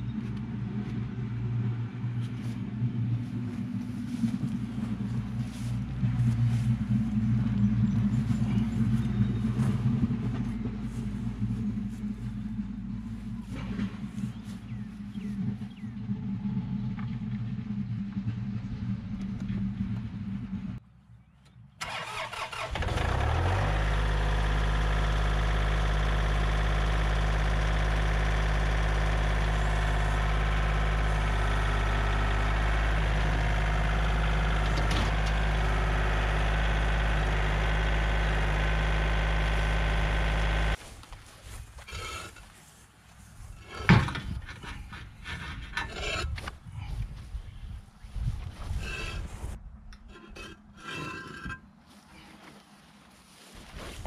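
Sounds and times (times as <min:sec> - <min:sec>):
rough running engine: 0:00.0 - 0:20.8, 0:21.8 - 0:52.7
engine starting and idling: 0:21.8 - 0:40.8.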